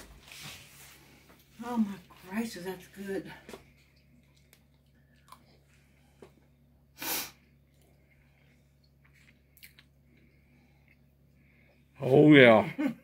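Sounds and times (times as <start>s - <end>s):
person chewing quietly: 3.4s - 6.7s, 7.4s - 11.9s
sharp burst of breath: 7.0s - 7.4s.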